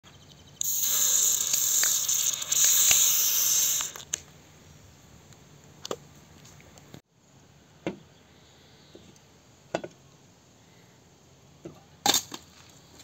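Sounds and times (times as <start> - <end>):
hiss of fizzing soda: 0.6 - 4.1.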